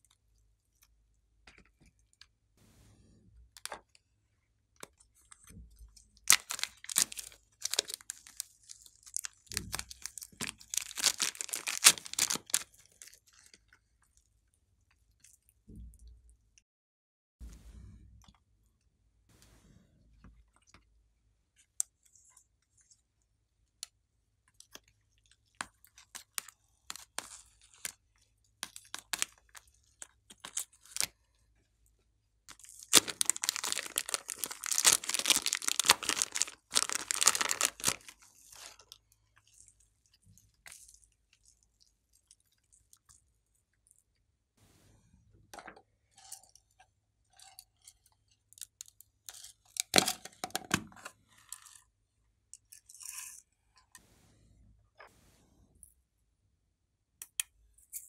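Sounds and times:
plastic bags crinkling and tearing: 6.2 - 13.2, 30.3 - 31.1, 32.5 - 38.9.

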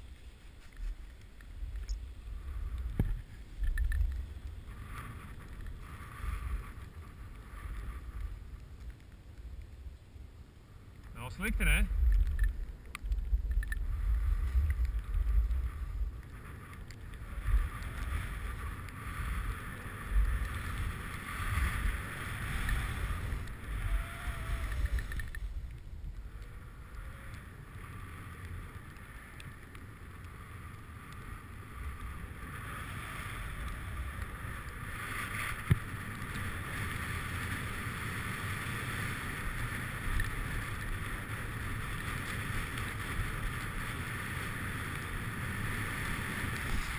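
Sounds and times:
skis sliding on snow: 0.0 - 9.9, 10.8 - 12.3, 13.2 - 46.9
wind buffeting microphone: 11.2 - 27.8.

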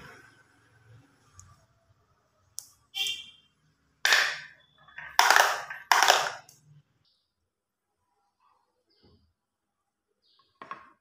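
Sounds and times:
marbles rattling down wooden track: 5.0 - 6.5.

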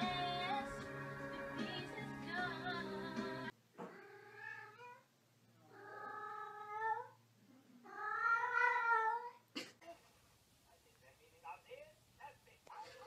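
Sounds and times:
cat meowing: 7.8 - 9.4.

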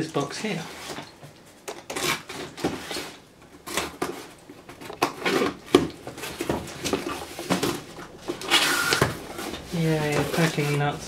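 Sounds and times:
knife slitting packing tape: 1.7 - 4.3, 8.3 - 9.1.

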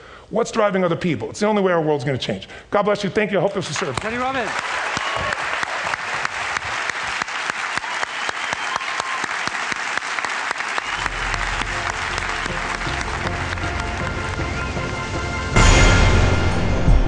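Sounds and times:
audience applauding: 3.7 - 15.5
music: 10.9 - 17.0.

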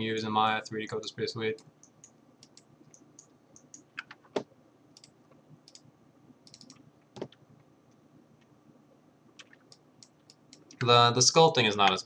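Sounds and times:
mouse and keyboard clicks: 1.6 - 7.4, 9.4 - 10.9.

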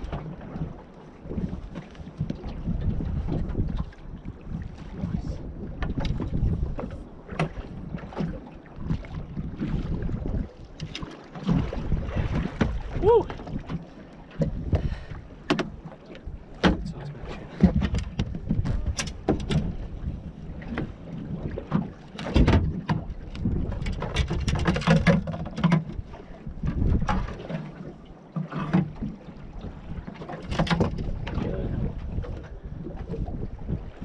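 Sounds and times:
wind on microphone: 0.0 - 28.0, 28.6 - 34.0
water lapping against hull: 0.0 - 34.0
knocks in aluminium boat: 5.7 - 27.8, 28.4 - 34.0.

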